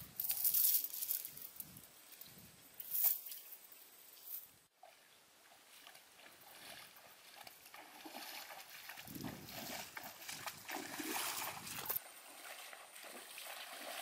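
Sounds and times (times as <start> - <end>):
legs wading through water: 4.8 - 14.0.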